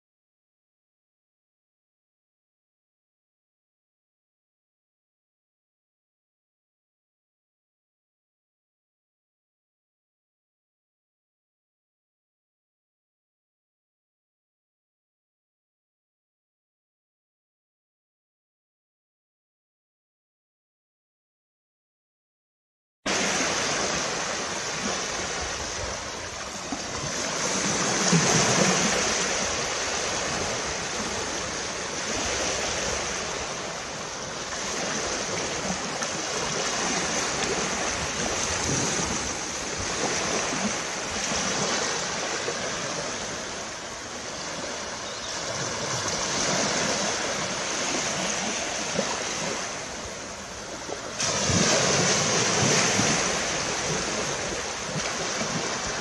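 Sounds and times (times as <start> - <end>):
small waves breaking on beach: 23.1 - 56.0.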